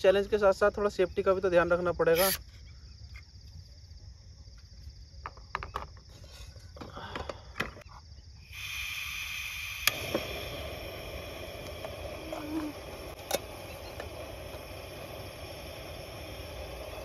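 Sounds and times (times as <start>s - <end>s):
steady hiss: 0.0s - 2.6s, 8.2s - 17.0s
crickets chirping: 0.0s - 17.0s.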